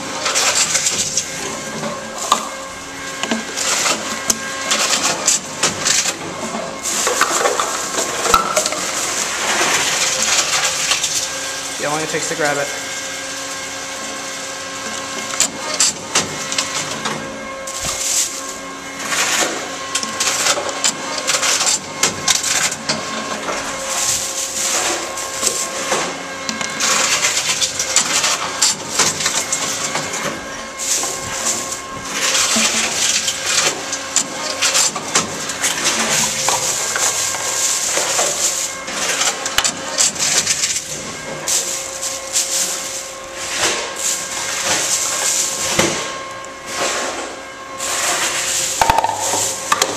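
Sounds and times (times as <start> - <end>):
machine mechanical hum: 0.0 - 49.9
plastic bottles clattering: 6.8 - 11.2, 48.4 - 49.9.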